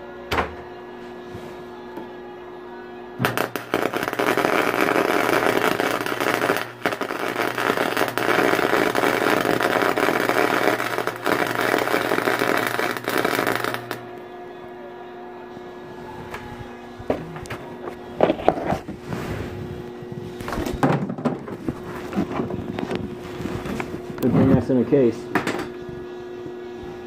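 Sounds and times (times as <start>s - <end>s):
electric arc welding crackle: 3.2s - 14.1s.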